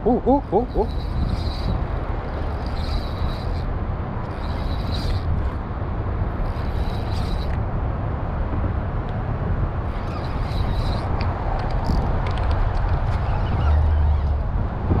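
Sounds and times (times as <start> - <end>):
wind rumble on microphone: 0.0 - 15.0
spinning reel cranking: 0.6 - 5.6, 6.4 - 7.6, 9.9 - 14.4.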